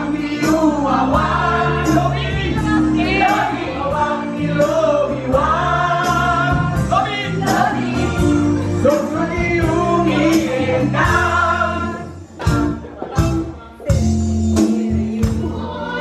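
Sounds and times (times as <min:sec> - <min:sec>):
backing music through a loudspeaker: 0:00.0 - 0:16.0
women singing along: 0:00.0 - 0:16.0
man singing into a microphone: 0:08.8 - 0:12.1.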